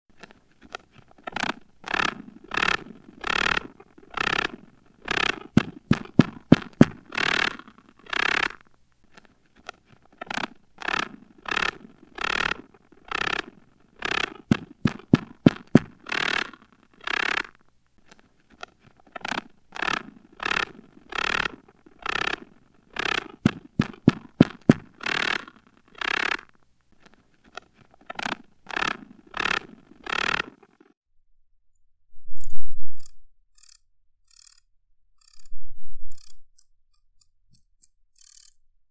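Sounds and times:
short bursts of noise: 0.3 - 8.6, 10.1 - 17.7, 18.7 - 26.6, 27.4 - 31.0
sharp clicks: 0.6 - 8.6, 9.6 - 17.6, 18.6 - 26.5, 27.4 - 30.8.

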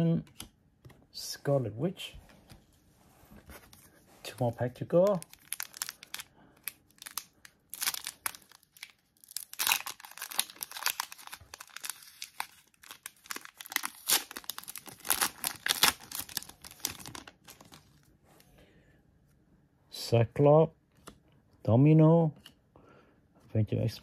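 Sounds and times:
wrapper tearing and crinkling: 5.0 - 18.0.

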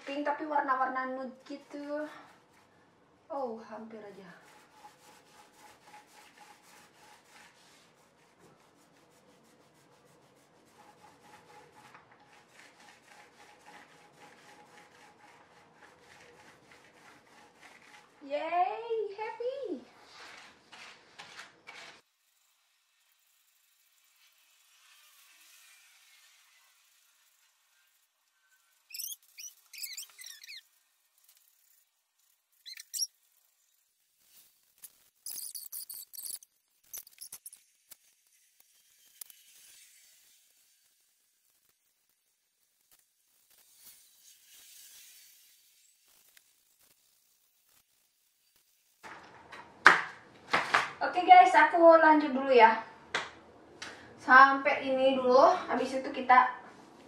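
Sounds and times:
paint roller rasping on wall: 0.1 - 38.2.

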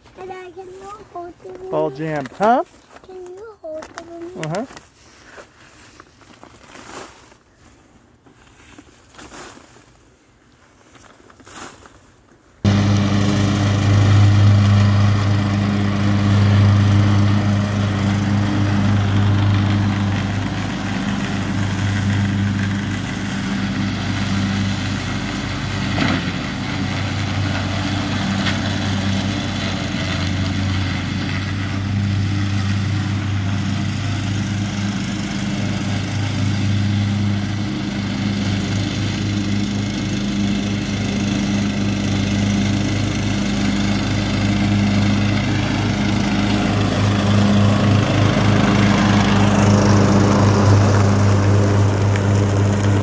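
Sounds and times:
lawn mower engine running: 12.6 - 53.0.

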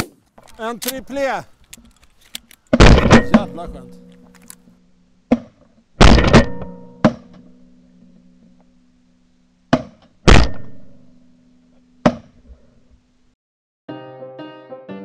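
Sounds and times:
shotgun shots: 2.8 - 3.9, 6.0 - 6.7.

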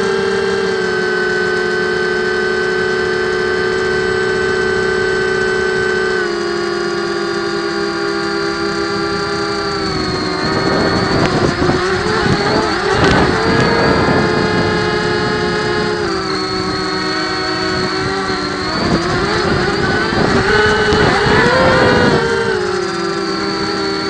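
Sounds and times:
drone propellers whining: 0.0 - 24.0
rough rushing air: 8.8 - 23.9.

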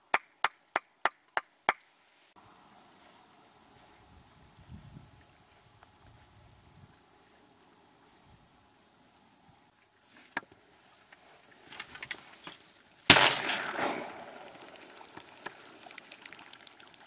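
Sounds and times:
shotgun blast with echo: 13.1 - 14.6.

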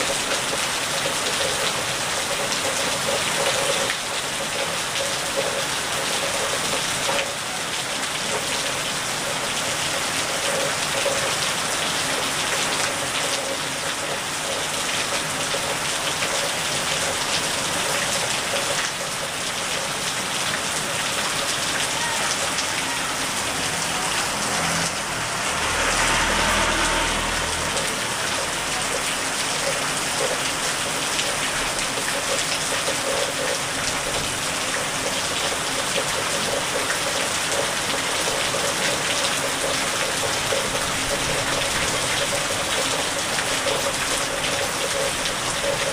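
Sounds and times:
rain on wet pavement: 0.0 - 45.9.

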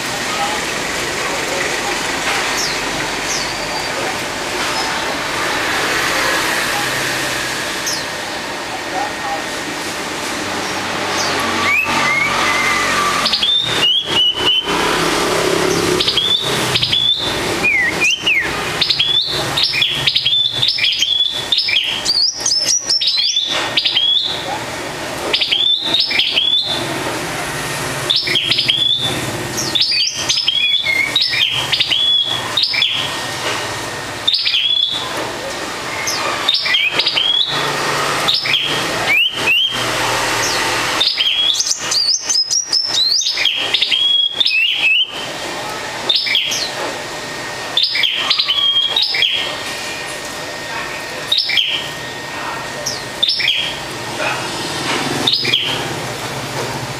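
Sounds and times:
songbird chirping: 10.7 - 24.4.

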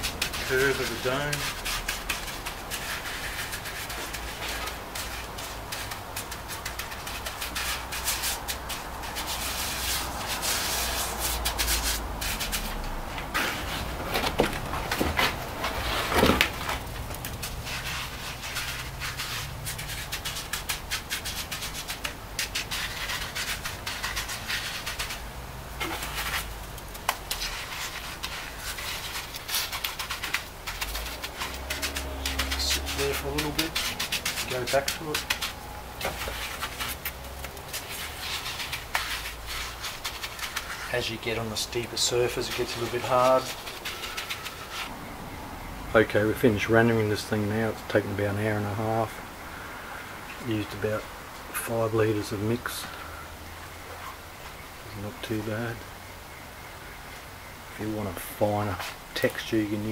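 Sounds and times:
hand patting wet cement: 0.0 - 44.9.

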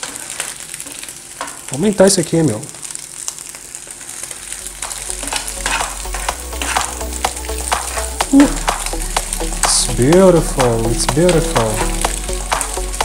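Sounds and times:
eggs sizzling in a frying pan: 0.0 - 13.0
utensil scraping a pan: 4.8 - 7.0.

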